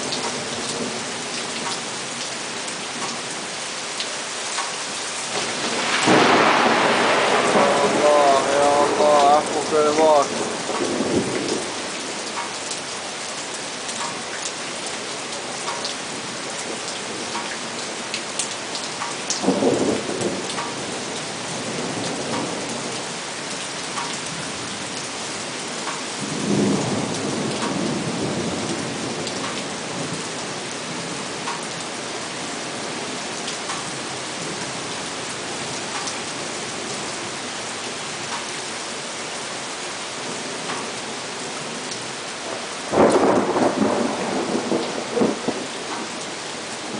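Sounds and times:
heavy rain falling: 0:00.0 - 0:46.9
thunder rumbling: 0:05.3 - 0:12.2, 0:19.4 - 0:23.2, 0:26.2 - 0:31.3, 0:42.4 - 0:46.9.

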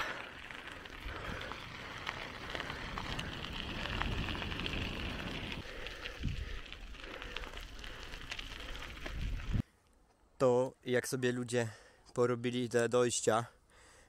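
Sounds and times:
tyres crackling on path: 0:00.0 - 0:13.9
wind rumbling on microphone: 0:00.4 - 0:09.6.

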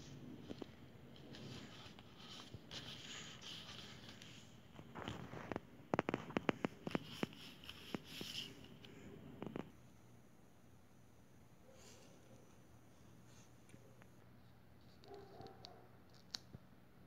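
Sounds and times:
fingers rubbing sticker on paper: 0:01.2 - 0:04.4, 0:05.5 - 0:08.9.

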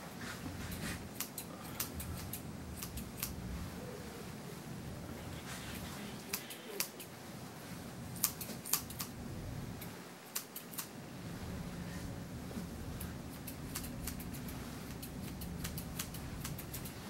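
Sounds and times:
shears snipping hair: 0:00.6 - 0:03.4, 0:05.7 - 0:07.1, 0:08.2 - 0:09.2, 0:09.8 - 0:10.9, 0:13.0 - 0:17.0.

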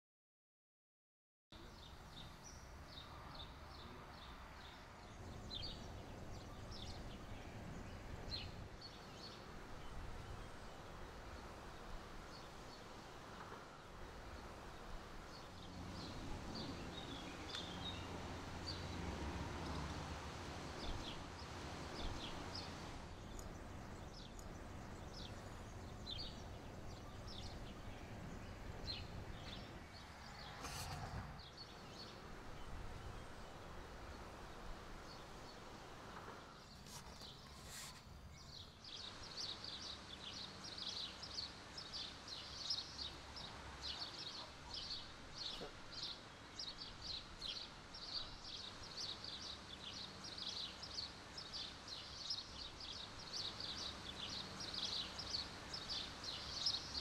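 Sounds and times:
birds chirping: 0:01.6 - 0:57.0
outdoor background rumble: 0:02.7 - 0:37.5.

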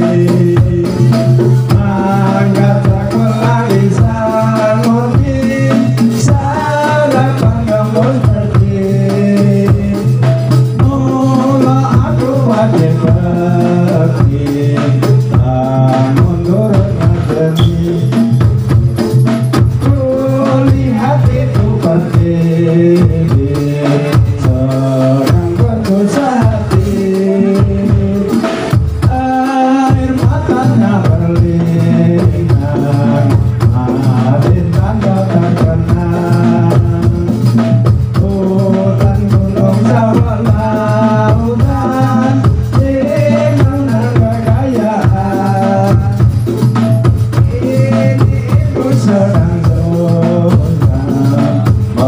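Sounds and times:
dense drumming: 0:00.0 - 0:52.0
jingling tambourine percussion: 0:00.0 - 0:52.0
sung melody with held notes: 0:00.0 - 0:52.0
low held tone: 0:17.5 - 0:18.6.

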